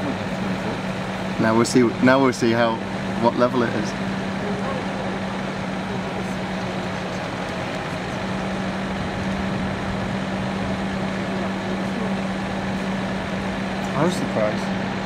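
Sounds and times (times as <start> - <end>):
diesel engine humming: 0.0 - 15.0.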